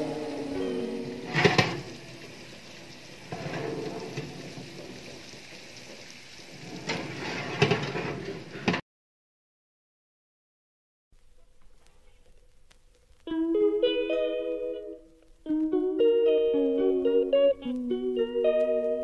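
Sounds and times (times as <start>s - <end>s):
chips sizzling in oven: 0.0s - 8.8s, 11.6s - 19.0s
metal tray clanking on oven rack: 1.3s - 2.0s, 3.3s - 5.0s, 6.7s - 8.8s.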